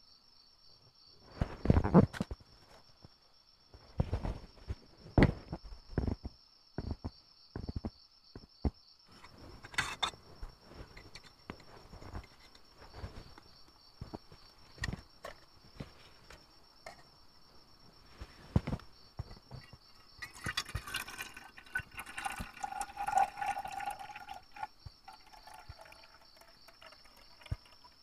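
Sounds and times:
crickets chirring: 0:00.0 - 0:28.0
camping gear knocks and rustles: 0:03.8 - 0:21.2.

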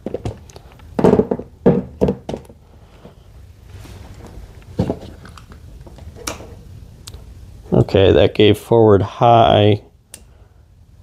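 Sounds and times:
thunks and knocks on tabletop: 0:01.0 - 0:02.5.

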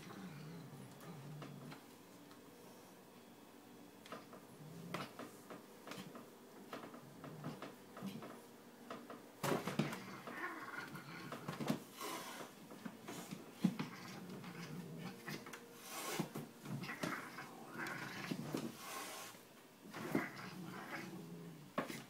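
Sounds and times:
cat growling: 0:09.8 - 0:11.6, 0:13.7 - 0:15.6, 0:16.7 - 0:18.7, 0:19.8 - 0:21.8.

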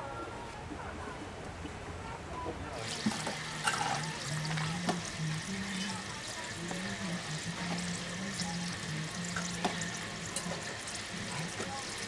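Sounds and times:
street-stall background noise: 0:00.0 - 0:12.0.

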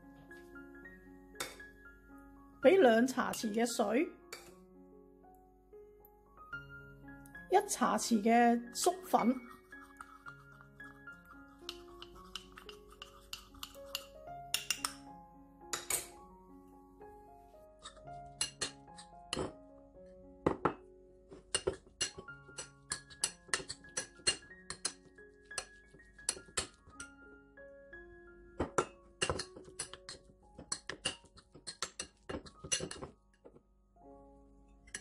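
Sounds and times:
background music: 0:00.0 - 0:35.0
metal spoon scraping ceramic bowl: 0:09.2 - 0:15.0, 0:17.8 - 0:19.6, 0:21.5 - 0:27.2, 0:28.8 - 0:33.1.

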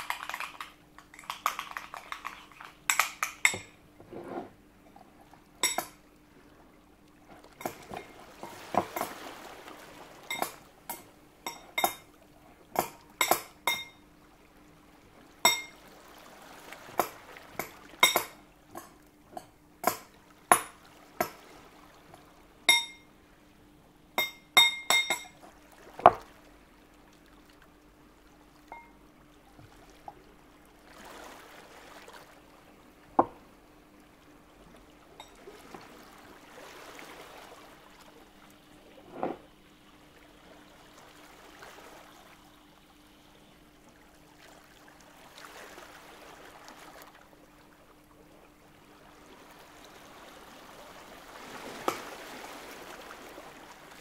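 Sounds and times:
utensils clinking against glassware: 0:00.0 - 0:03.8, 0:05.6 - 0:06.0, 0:10.3 - 0:12.1, 0:12.8 - 0:14.0, 0:15.5 - 0:15.8, 0:17.0 - 0:20.8, 0:22.7 - 0:23.0, 0:24.2 - 0:25.4
liquid being poured: 0:00.0 - 0:04.2.

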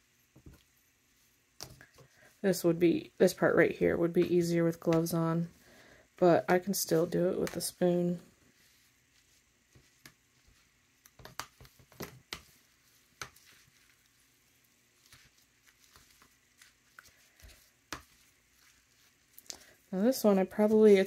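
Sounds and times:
wet fabric squishing: 0:11.4 - 0:21.0.

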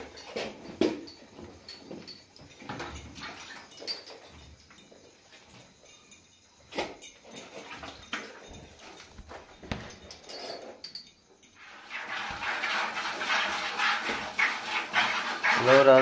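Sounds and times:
milk squirting into plastic bucket: 0:11.8 - 0:16.0.

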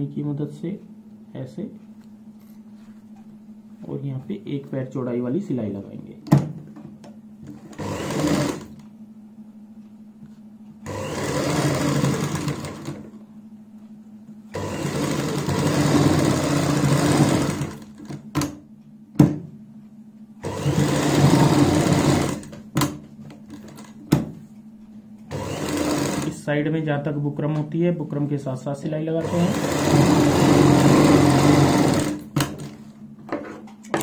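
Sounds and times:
low steady hum: 0:00.0 - 0:34.0
sewing machine stitching: 0:07.5 - 0:08.8, 0:10.8 - 0:13.1, 0:14.5 - 0:18.3, 0:20.4 - 0:22.6, 0:25.3 - 0:26.4, 0:29.2 - 0:32.8.

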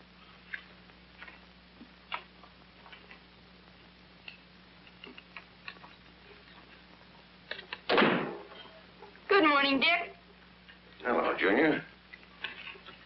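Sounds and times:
film soundtrack hum and hiss: 0:00.0 - 0:13.0.

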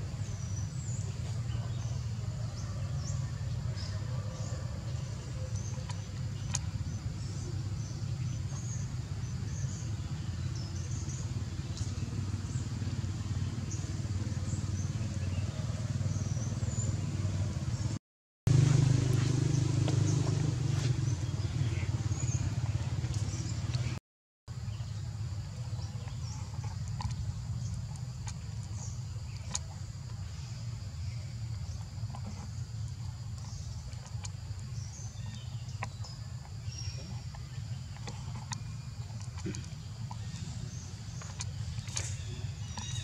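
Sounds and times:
low engine drone: 0:00.0 - 0:43.0.

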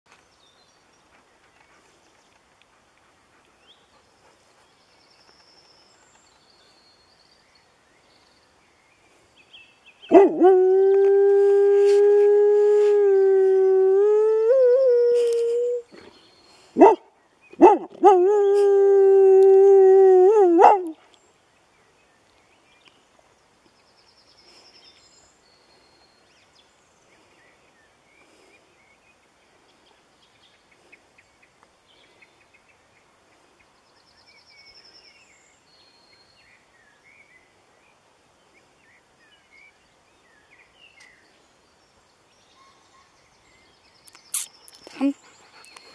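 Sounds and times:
dog howling: 0:10.1 - 0:15.8, 0:17.6 - 0:21.0.

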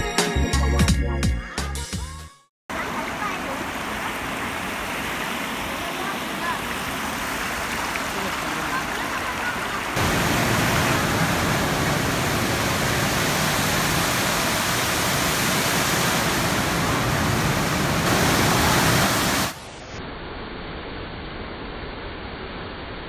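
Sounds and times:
water falling into pool: 0:02.7 - 0:19.8.

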